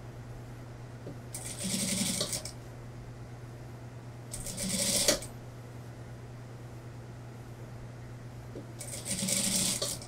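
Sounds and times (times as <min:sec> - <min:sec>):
steady low hum: 0:00.0 - 0:10.0
sewing machine stitching: 0:01.4 - 0:02.5, 0:04.3 - 0:05.3, 0:08.8 - 0:10.0.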